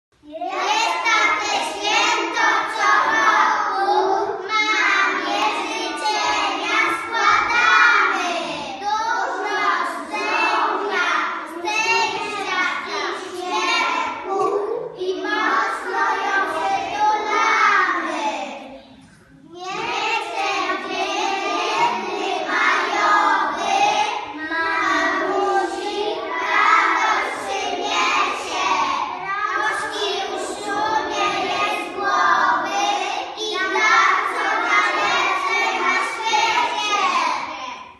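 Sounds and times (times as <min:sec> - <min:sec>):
children singing in unison: 0:00.3 - 0:37.9.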